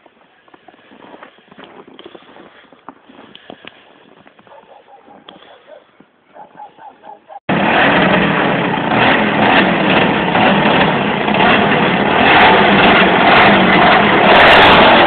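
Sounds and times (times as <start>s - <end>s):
two-stroke engine running: 7.5s - 15.0s.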